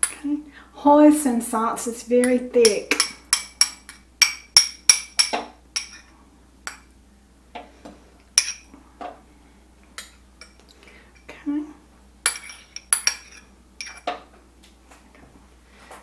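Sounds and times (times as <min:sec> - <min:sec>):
metal spoon clinking on bowl: 0:02.2 - 0:06.1, 0:08.4 - 0:08.7, 0:12.3 - 0:14.0.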